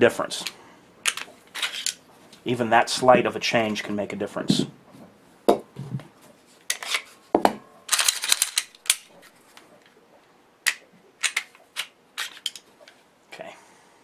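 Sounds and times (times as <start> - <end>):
pistol parts clicking: 1.0 - 2.0, 7.9 - 9.2, 10.6 - 12.7.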